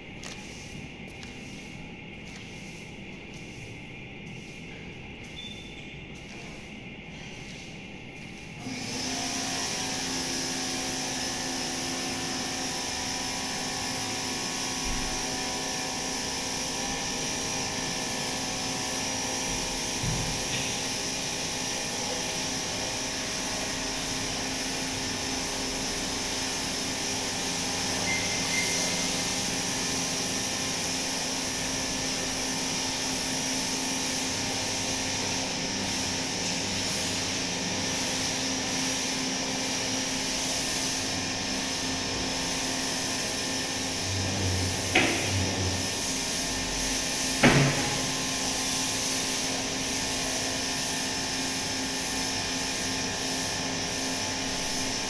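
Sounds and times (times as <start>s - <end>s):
household machine humming: 8.6s - 55.0s.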